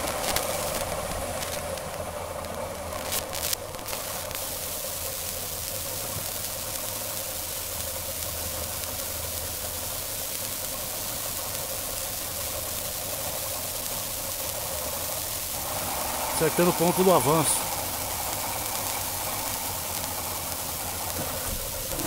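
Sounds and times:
outboard engine running: 10.8s - 22.0s.

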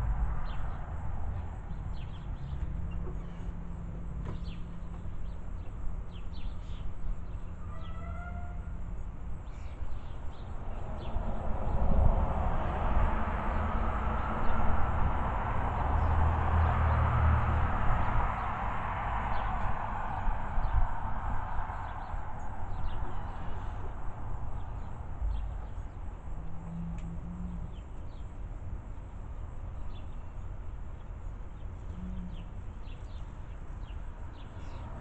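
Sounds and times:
broad rush of noise: 10.4s - 26.4s.

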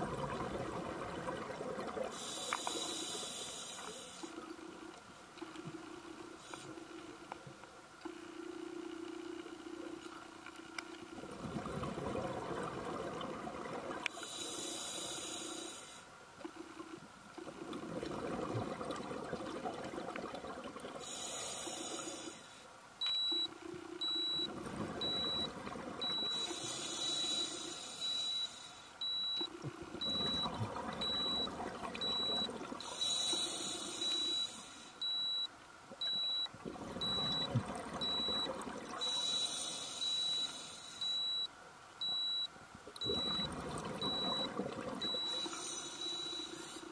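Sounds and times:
exhaled bubbles: 0.0s - 2.2s, 11.2s - 14.0s, 17.4s - 21.0s, 29.5s - 32.9s, 36.6s - 39.1s, 43.0s - 45.6s
regulator inhale hiss: 2.1s - 4.4s, 14.1s - 16.1s, 21.0s - 22.7s, 26.4s - 28.9s, 32.9s - 35.0s, 39.1s - 41.2s, 45.5s - 46.9s
dive computer beeping: 23.0s - 46.9s.

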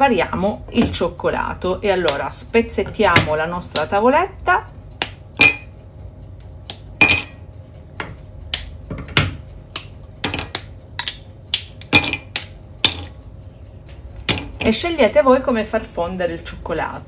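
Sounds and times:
chocolate bar snapping: 5.0s - 5.2s, 9.7s - 13.0s.

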